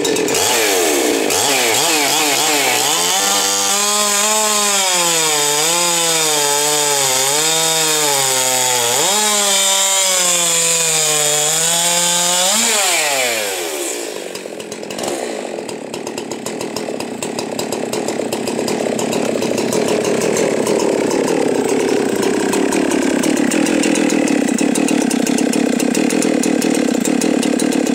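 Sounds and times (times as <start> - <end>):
chainsaw cutting log: 0.0 - 27.9
chainsaw idling: 0.0 - 27.9.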